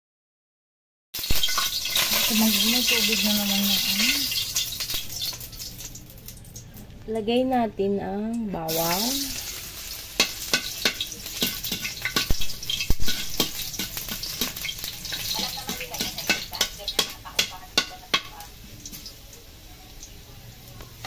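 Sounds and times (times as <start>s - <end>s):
garlic sizzling in hot oil: 1.2s - 6.7s, 8.6s - 21.0s
metal spatula scraping wok: 8.7s - 18.4s.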